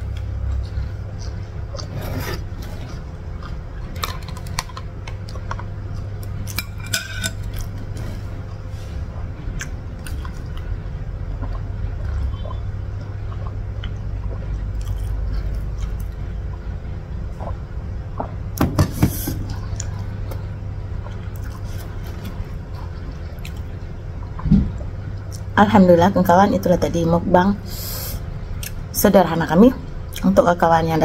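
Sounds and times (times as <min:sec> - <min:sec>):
low hum: 0:00.0 - 0:31.0
sipping and swallowing: 0:09.2 - 0:16.7.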